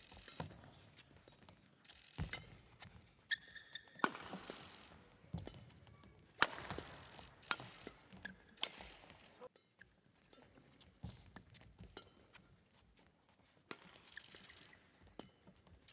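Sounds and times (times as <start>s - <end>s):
shoes squeaking on court floor: 0.0s - 15.9s
racket striking shuttlecock: 2.2s - 9.2s, 13.7s - 14.1s.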